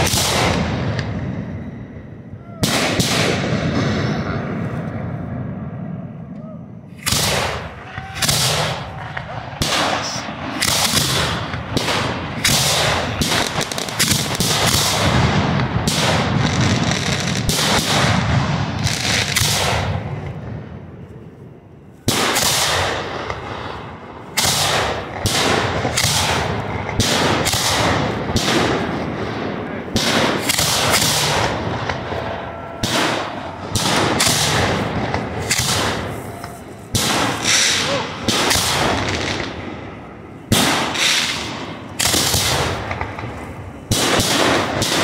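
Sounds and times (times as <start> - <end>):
fireworks shells banging: 30.0 - 39.7.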